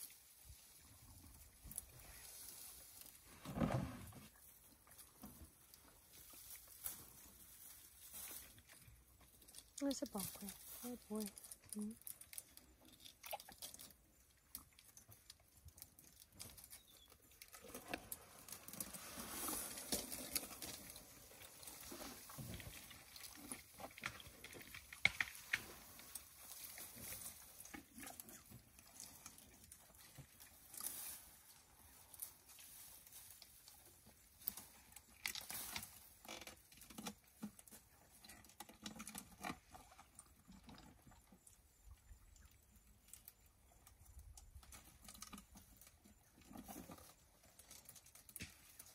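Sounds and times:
elephants chewing: 0.0s - 48.9s
rustling and snapping twigs: 4.8s - 37.8s, 43.0s - 48.9s.

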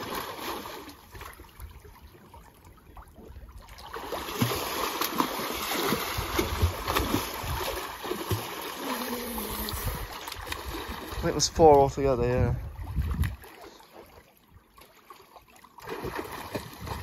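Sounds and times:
pool water splashing: 0.0s - 17.0s.

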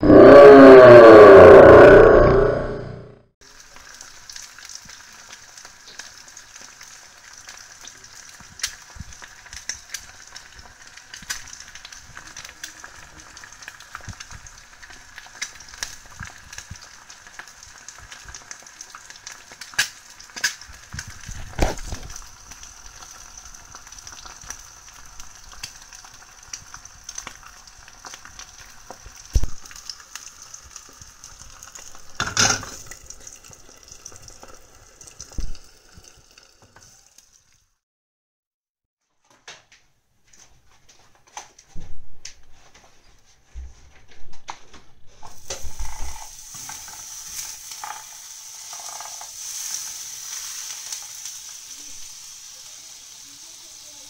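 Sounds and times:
food sizzling in a pan: 3.4s - 37.8s, 45.2s - 54.0s
knocks and rustles of handling: 39.1s - 45.4s.

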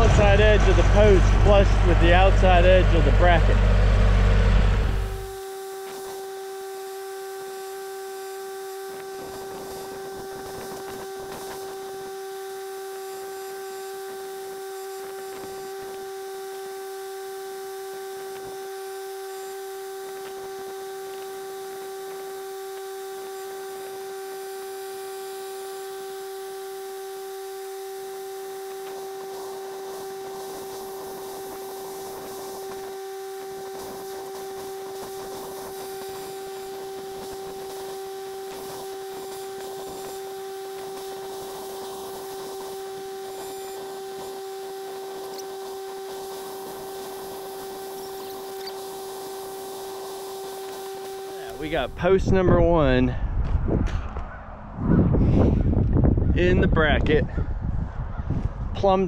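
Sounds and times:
steady hum with overtones: 0.0s - 59.0s.

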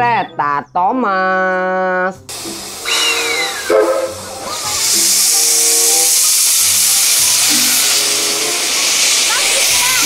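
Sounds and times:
background music: 0.0s - 6.1s, 6.8s - 10.0s
steam locomotive hissing: 2.3s - 10.0s.

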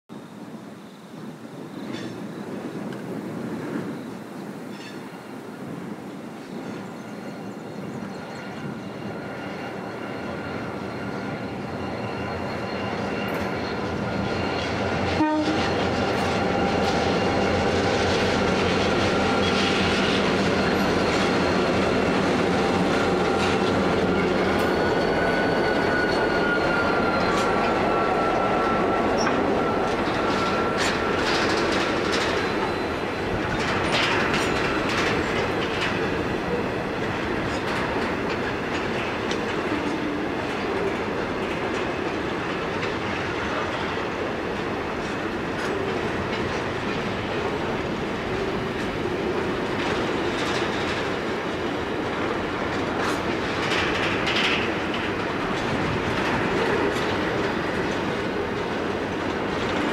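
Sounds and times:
diesel locomotives passing: 0.1s - 59.9s
thin steady whine: 7.0s - 33.6s
wagons clicking over rail joints: 12.5s - 59.9s.

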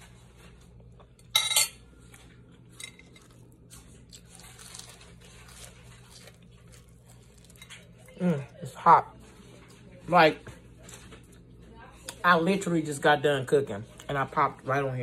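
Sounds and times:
low steady hum: 0.0s - 15.0s
soft biting sounds: 2.0s - 8.6s.

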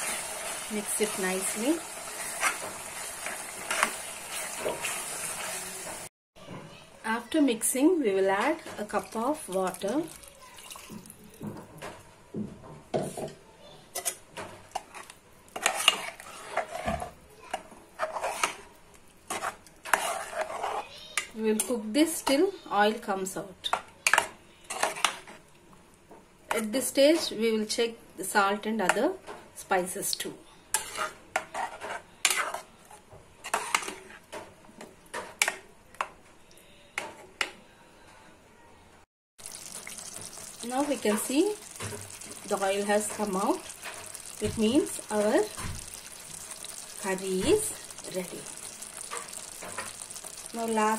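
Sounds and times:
curry bubbling with hiss: 8.7s - 11.7s, 39.4s - 50.9s
ladle scraping a metal pot: 14.8s - 17.1s, 18.0s - 18.6s, 19.3s - 20.8s, 30.7s - 32.7s, 33.4s - 34.2s.

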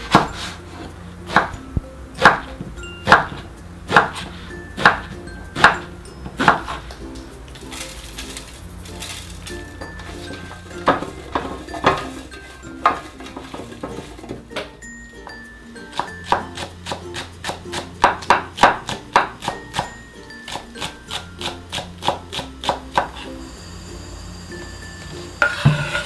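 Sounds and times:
knife chopping on wooden board: 0.0s - 0.5s, 1.3s - 1.6s, 2.2s - 6.8s, 15.9s - 19.9s, 20.5s - 23.2s
background music: 0.0s - 26.0s.

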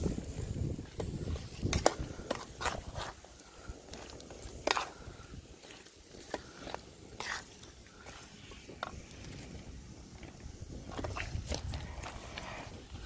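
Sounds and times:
metal spatula scraping wok: 3.8s - 8.9s.

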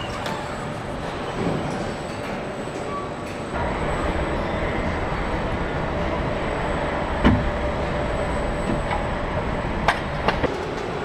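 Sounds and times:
steady mechanical rumble: 3.4s - 11.0s.

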